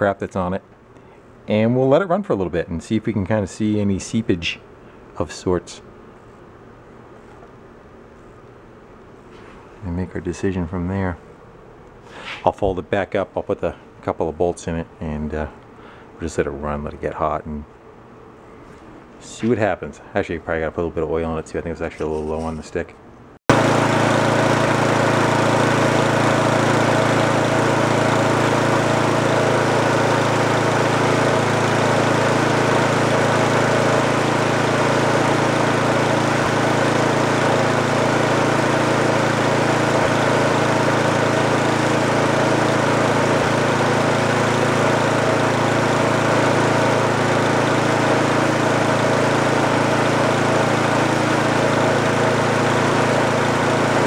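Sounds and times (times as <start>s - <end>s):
small engine running: 23.5s - 54.0s.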